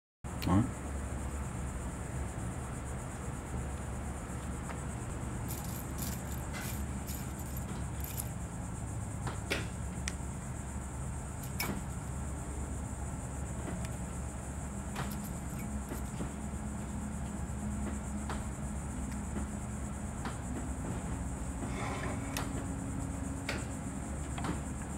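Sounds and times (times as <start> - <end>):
steady low hum: 0.3 - 24.9
small metal parts clicking: 5.4 - 8.4, 11.4 - 11.8, 15.0 - 16.2.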